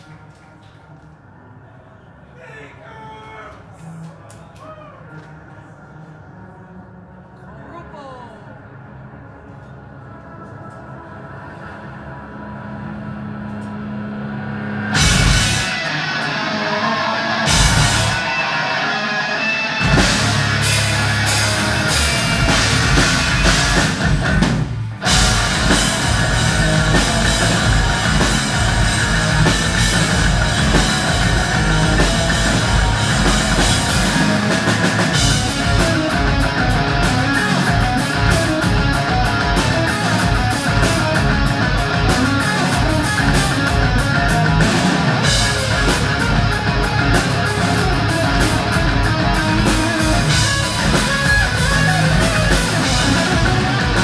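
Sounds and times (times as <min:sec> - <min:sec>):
live hard rock band: 0:14.6 - 0:54.0.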